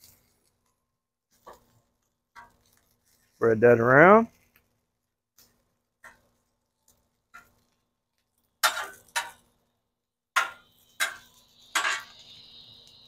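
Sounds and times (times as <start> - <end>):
metal utensil scraping griddle: 1.3 - 3.5, 5.4 - 7.8, 8.6 - 9.5, 10.4 - 12.2.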